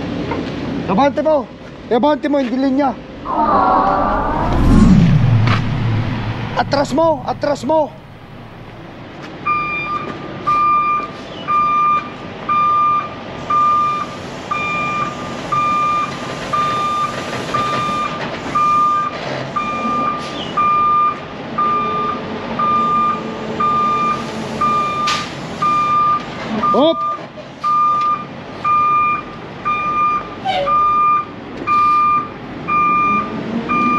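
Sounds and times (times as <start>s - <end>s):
truck engine running: 3.9s - 9.3s
truck reversing alarm beeping: 9.4s - 33.9s.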